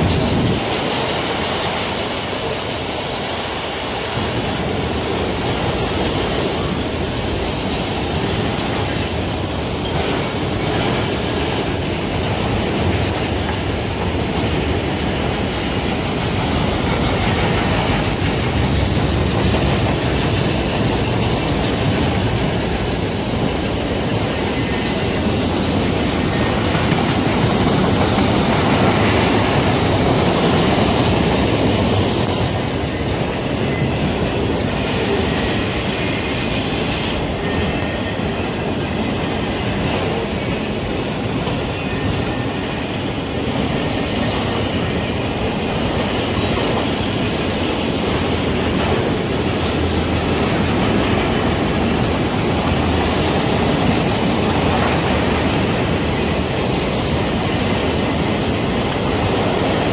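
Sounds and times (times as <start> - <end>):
steel wheels on rails: 0.0 - 59.9.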